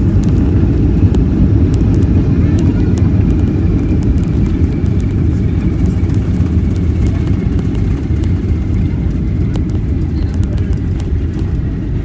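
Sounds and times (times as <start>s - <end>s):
airplane cabin engine rumble: 0.0s - 12.0s.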